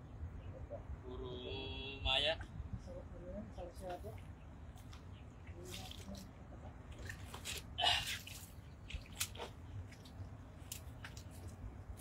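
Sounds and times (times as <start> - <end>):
water splashing and dripping: 4.2 - 12.0.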